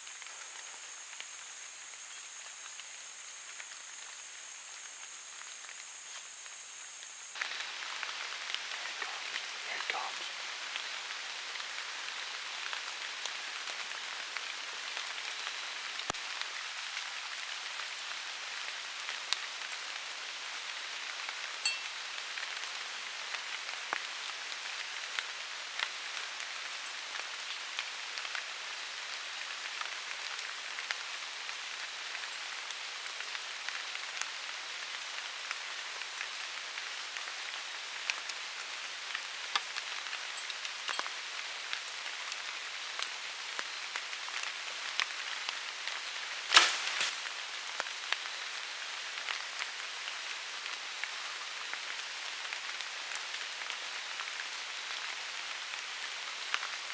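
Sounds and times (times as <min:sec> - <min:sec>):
water drops pattering on leaves: 0:07.3 - 0:16.8, 0:21.4 - 0:26.4, 0:39.1 - 0:49.7
sharp single drips: 0:21.7 - 0:22.0.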